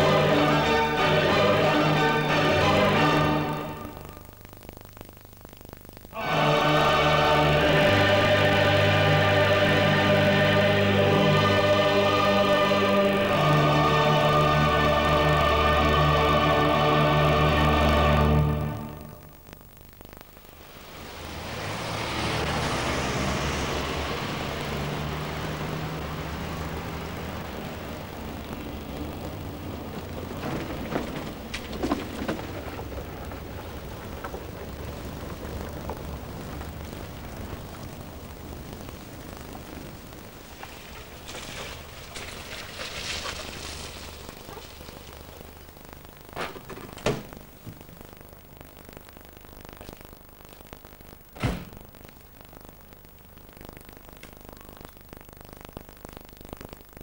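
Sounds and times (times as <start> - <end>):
steady background hiss: 0.0 - 57.0
car engine and road rumble: 18.4 - 57.0
knocks and rattles: 30.0 - 36.0.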